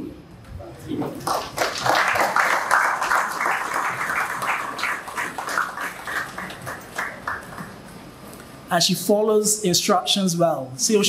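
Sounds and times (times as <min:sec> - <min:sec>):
audience applauding: 0:01.2 - 0:07.9.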